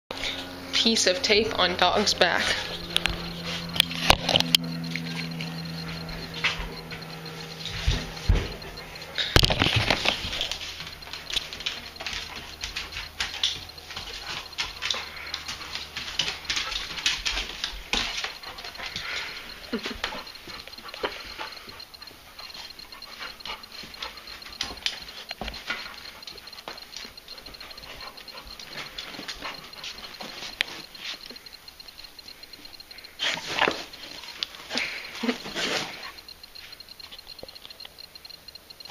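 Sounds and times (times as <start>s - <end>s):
dog claws clicking on floor: 9.2s - 21.8s.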